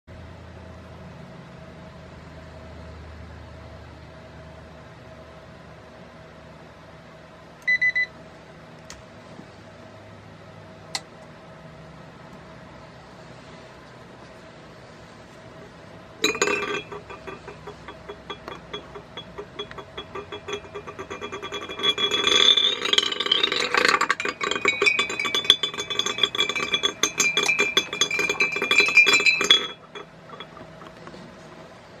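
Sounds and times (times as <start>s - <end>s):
stir bar clattering in glass jar: 16.2s - 31.2s.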